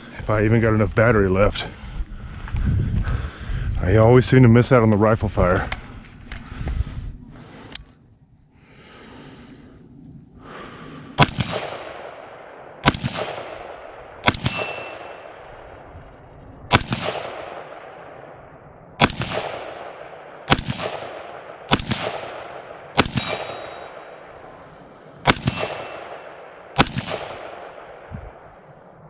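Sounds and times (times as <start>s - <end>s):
rifle shots echoing: 11.2s - 29.0s.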